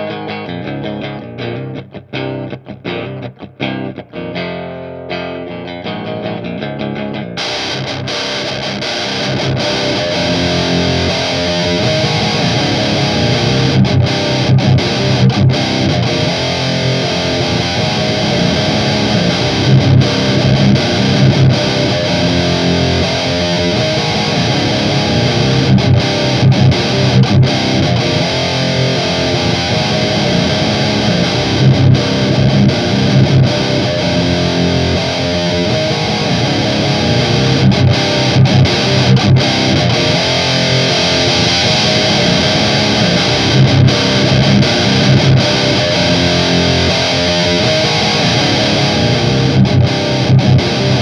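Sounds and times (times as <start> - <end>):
distorted electric guitar riff: 0.0 - 51.0.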